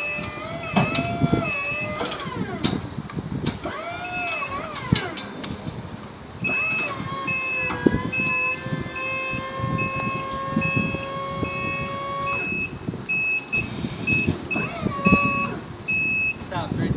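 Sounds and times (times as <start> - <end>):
lift motion alarm beeping: 0.0 - 2.3, 6.4 - 16.4
hydraulic pump motor whining: 0.0 - 5.6, 6.4 - 16.0.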